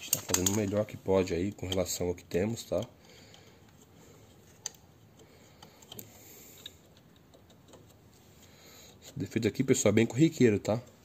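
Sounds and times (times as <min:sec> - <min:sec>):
low room hiss: 0:00.0 - 0:11.0
small plastic and metal parts clicking: 0:04.4 - 0:08.0.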